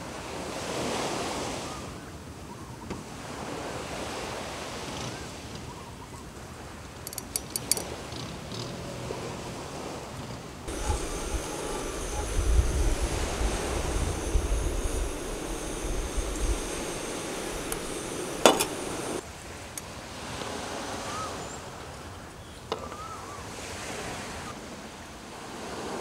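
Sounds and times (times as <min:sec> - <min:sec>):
wind rumble on microphone: 0:10.1 - 0:19.2.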